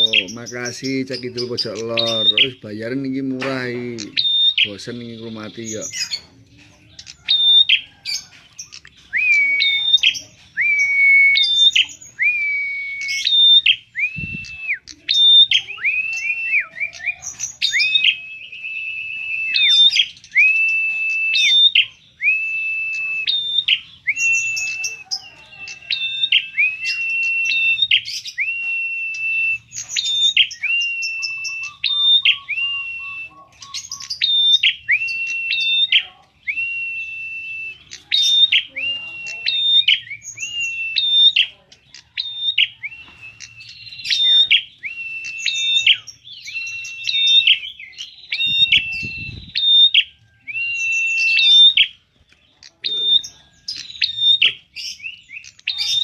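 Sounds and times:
bird calling: 0.0 - 56.0.

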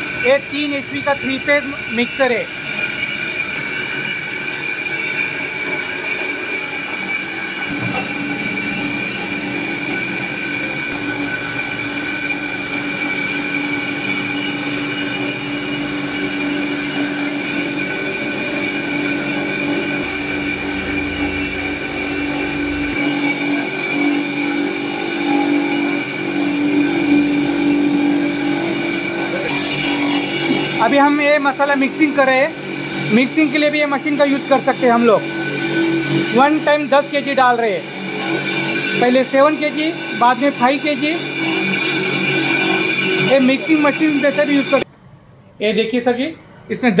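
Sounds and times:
spice grinder whining: 0.0 - 44.9
lower hum: 7.7 - 29.5.

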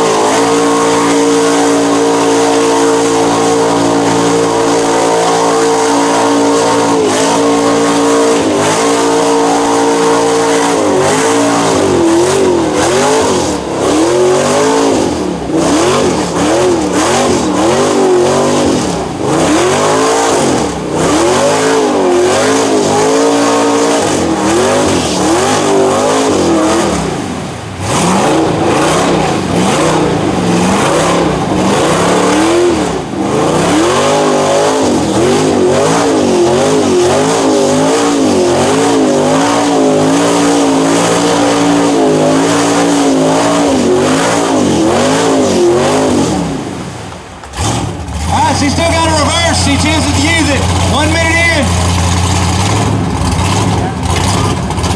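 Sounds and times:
truck engine running flat out: 47.5 - 54.9.

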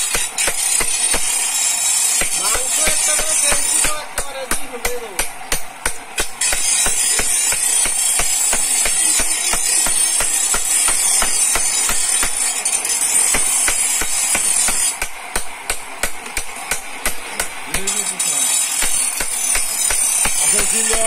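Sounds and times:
hammer tapping chisel on stone: 2.2 - 12.4, 18.8 - 21.0.

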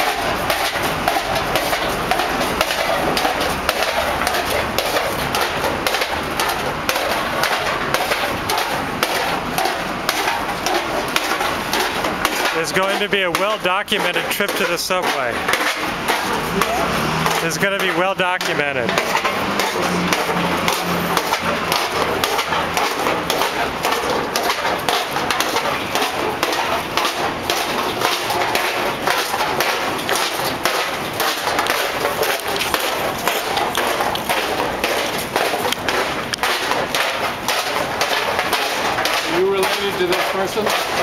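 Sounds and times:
footsteps on pavement: 0.0 - 41.0
knocks and thumps: 0.0 - 41.0.

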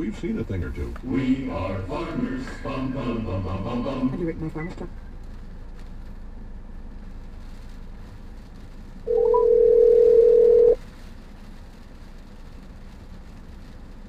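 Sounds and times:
low cabin hum: 0.0 - 14.0
telephone ringback tone: 9.1 - 10.8.

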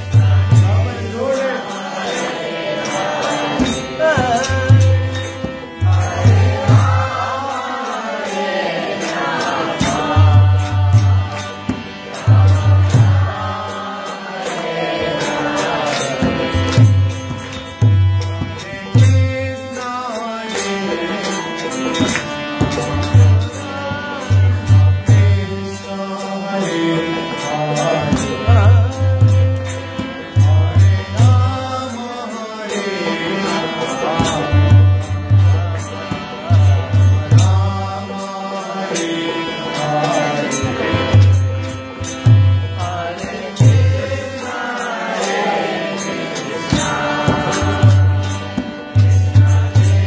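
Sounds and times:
drum beating: 0.0 - 1.2, 3.6 - 7.5, 9.7 - 14.0
harmonium chords: 0.0 - 50.0
man chanting: 3.5 - 8.0, 22.8 - 42.1.

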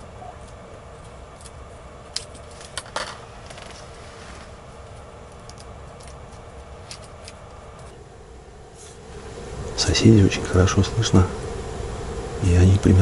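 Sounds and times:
low background hum: 0.0 - 13.0
light rustling: 2.2 - 8.0.

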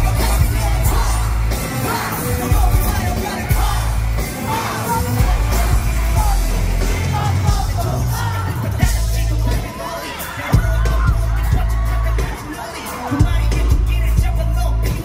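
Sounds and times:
bass-driven beat: 0.0 - 15.0
vocals: 0.0 - 15.0.

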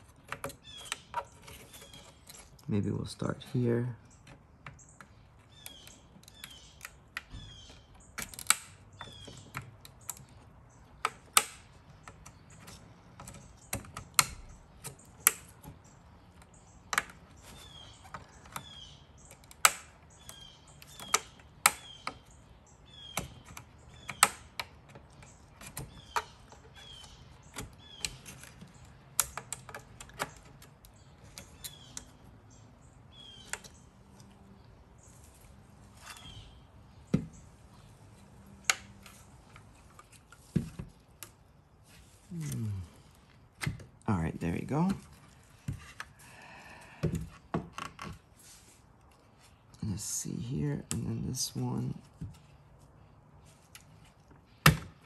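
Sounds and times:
plastic clips clicking and snapping: 8.0 - 22.3, 23.1 - 32.2.

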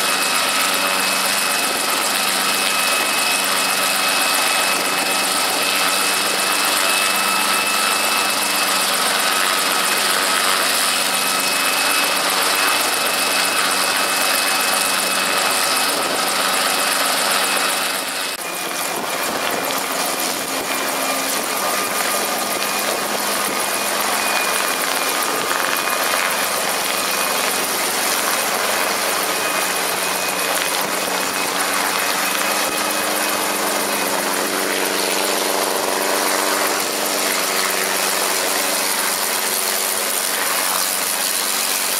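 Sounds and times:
helicopter engine and rotor: 0.0 - 41.9.

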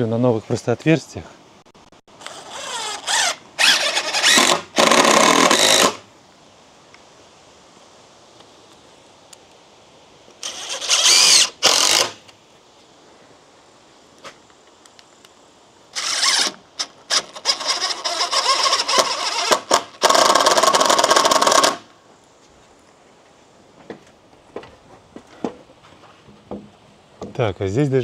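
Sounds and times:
drill-driver driving screws into wood: 2.2 - 6.0, 10.4 - 12.2, 16.0 - 21.9.

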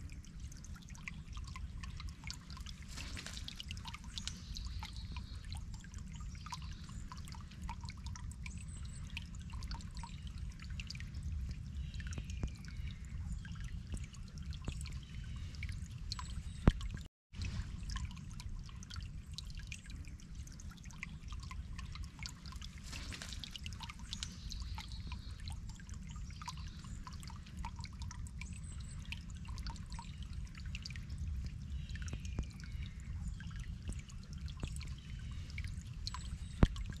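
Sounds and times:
creek water trickling over stones: 0.0 - 37.0
steady low rumble: 0.0 - 37.0.

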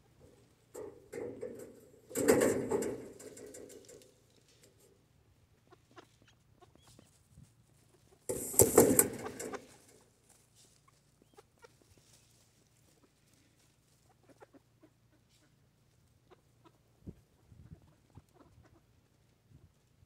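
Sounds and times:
rustling in dry leaves: 7.0 - 14.4.

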